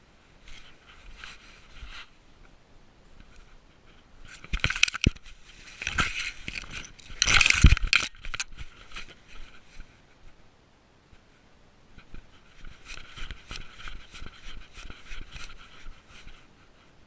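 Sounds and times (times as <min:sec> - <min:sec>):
dry grass rustling and crunching: 0:03.0 - 0:10.0
camera knocks and clinks: 0:05.8 - 0:08.5.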